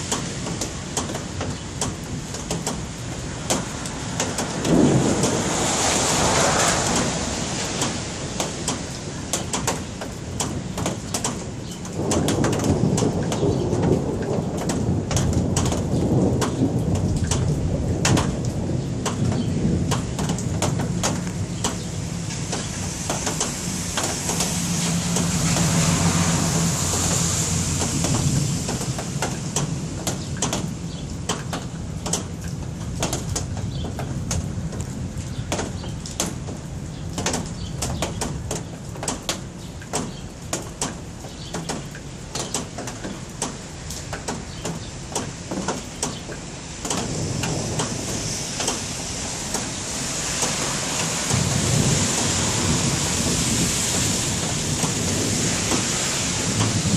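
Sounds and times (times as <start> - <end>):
sharp drip-like clicks: 0.0 - 5.4, 7.7 - 25.8, 26.6 - 48.0, 48.6 - 48.8, 49.5 - 51.4
low thunder rumble: 0.0 - 9.2, 11.4 - 38.5, 46.8 - 56.9
rain falling: 0.0 - 56.9
hiss: 48.0 - 56.9.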